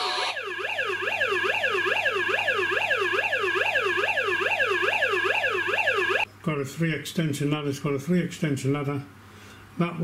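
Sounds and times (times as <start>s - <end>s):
toy fire truck siren wailing: 0.0s - 6.3s.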